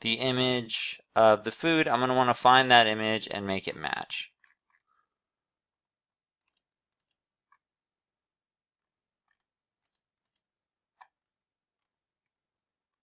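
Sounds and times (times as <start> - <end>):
computer mouse clicks: 6.4 - 7.2, 9.8 - 10.4.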